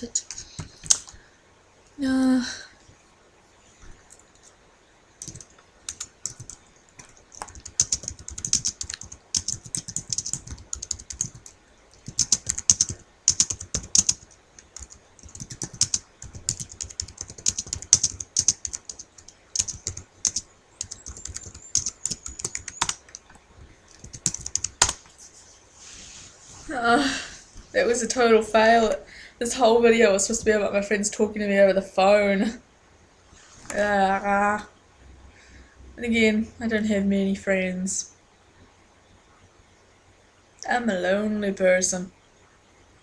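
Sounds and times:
computer keyboard typing: 0.0s - 1.2s, 5.2s - 25.0s.

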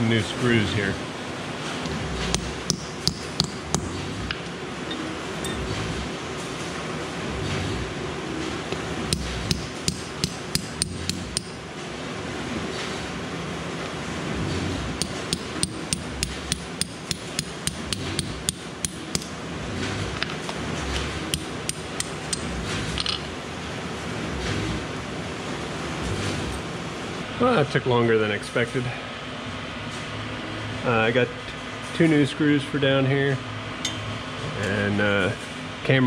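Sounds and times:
hammer tapping metal punch: 2.3s - 4.1s, 9.1s - 11.6s, 15.0s - 19.4s, 21.3s - 23.2s.

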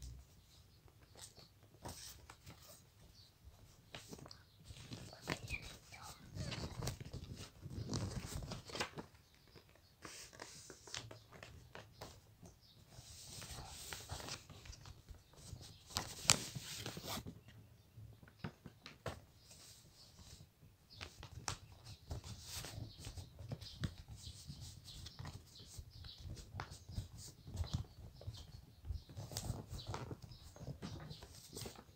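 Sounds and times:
paper rustling and crinkling: 3.5s - 17.4s, 21.0s - 31.9s.

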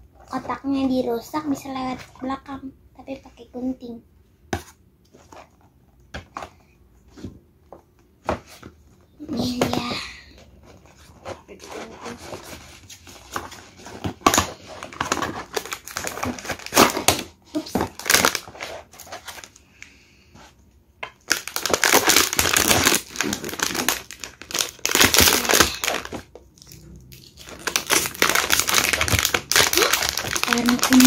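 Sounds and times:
foil bag crinkling: 14.6s - 19.6s, 21.2s - 31.0s.

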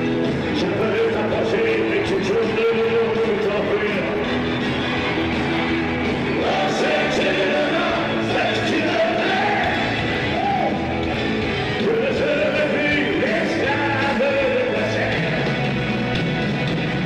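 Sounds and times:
live rock band playing: 0.0s - 17.0s
man singing long lines: 0.4s - 4.3s, 6.3s - 10.7s, 11.8s - 15.6s.

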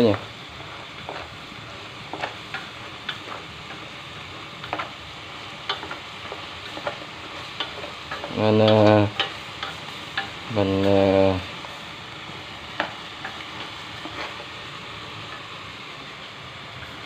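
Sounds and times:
chicken sizzling in a pot: 0.0s - 17.0s
utensil clicking against pot: 5.6s - 10.4s.

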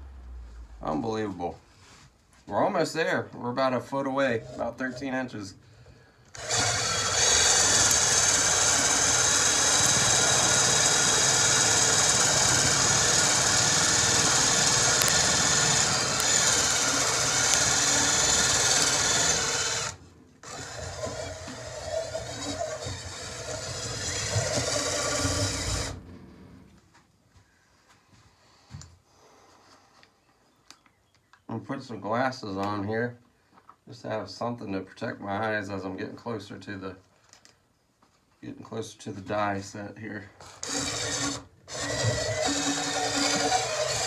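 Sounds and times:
die rasping on wood: 4.3s - 5.0s, 6.4s - 26.0s, 40.6s - 44.0s
electric drill motor running: 6.3s - 26.4s, 40.4s - 44.0s.

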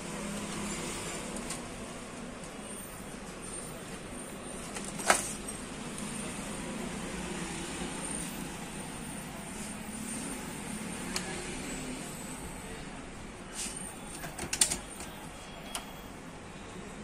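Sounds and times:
printer carriage clicking: 14.1s - 15.9s.

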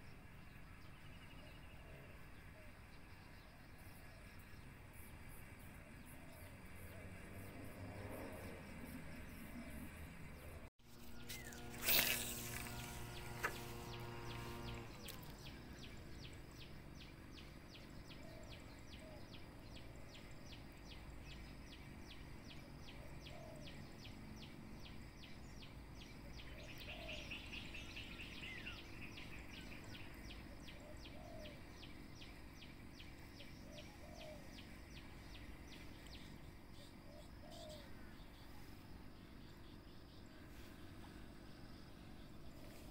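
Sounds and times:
insect chirping: 0.0s - 42.9s
soft bird calls: 9.3s - 42.9s.

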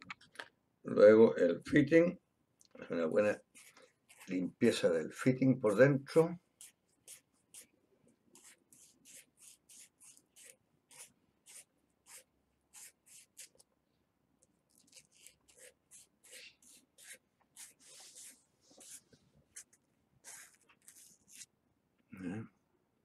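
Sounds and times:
scratchy rubbing inside pipe fitting: 14.8s - 21.5s.

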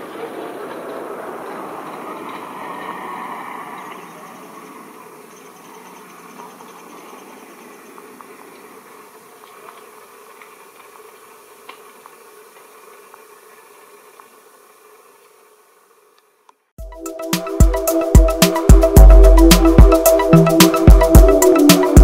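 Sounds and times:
insects chirping: 1.4s - 22.0s
diesel train drawing off: 16.8s - 22.0s.

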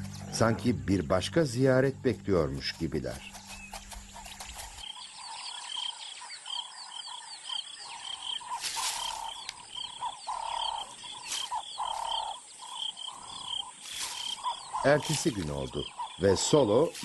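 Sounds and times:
high chirping call: 3.1s - 17.0s
lower animal calls: 4.1s - 17.0s.

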